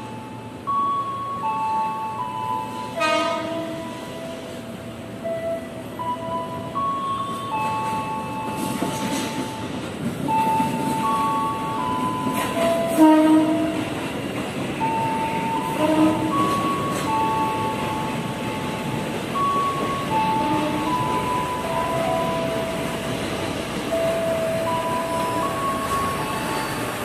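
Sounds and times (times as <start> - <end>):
train rolling to a stop: 0.0 - 27.0.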